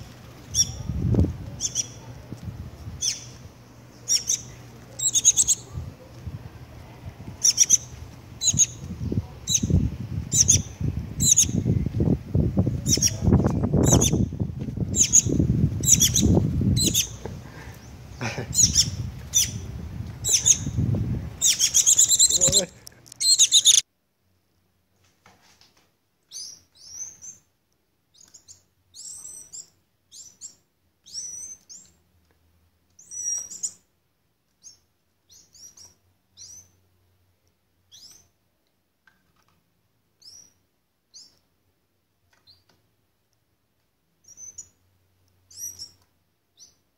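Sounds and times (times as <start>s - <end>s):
faint high chick calls: 3.0s - 3.4s, 4.0s - 5.8s, 7.4s - 11.7s, 14.9s - 20.8s, 21.4s - 23.8s
sharp high bird chirps: 3.0s - 3.4s, 7.4s - 8.8s, 14.9s - 17.2s, 18.6s - 19.6s, 21.4s - 22.6s, 23.2s - 23.8s, 44.2s - 44.8s.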